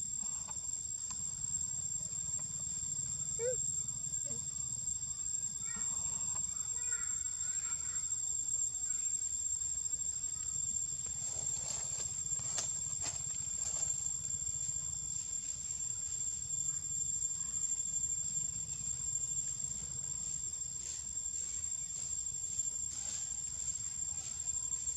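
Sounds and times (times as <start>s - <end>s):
high-pitched insect drone: 0.0s - 24.9s.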